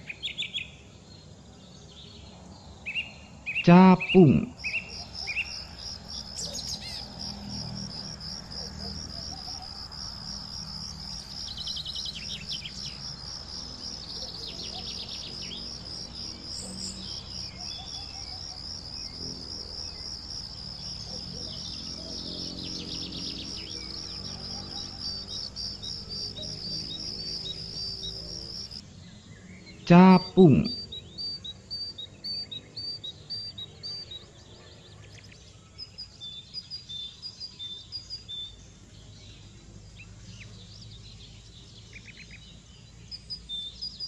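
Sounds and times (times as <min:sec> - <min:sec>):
insect trilling: 0:04.0 - 0:28.8.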